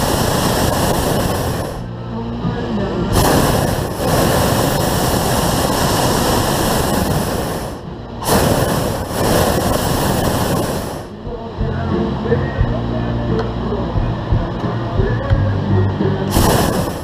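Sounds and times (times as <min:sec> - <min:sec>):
propane burner firing: 0:00.0 - 0:11.8, 0:16.0 - 0:17.0.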